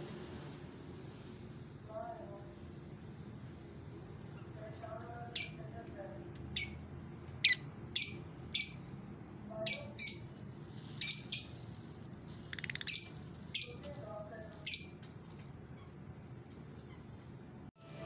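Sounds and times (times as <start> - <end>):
lovebirds chirping: 9.6 - 10.4, 11.0 - 11.7, 12.5 - 15.0.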